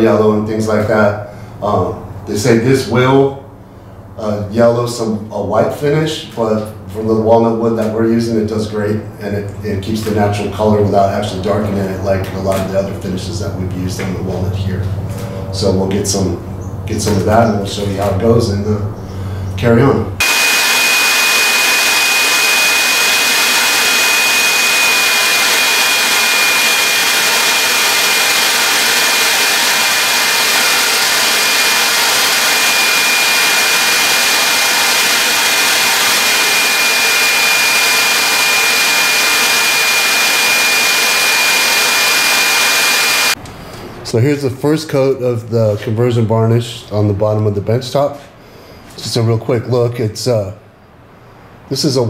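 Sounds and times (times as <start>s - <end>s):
thin high whine: 20.2s - 43.4s.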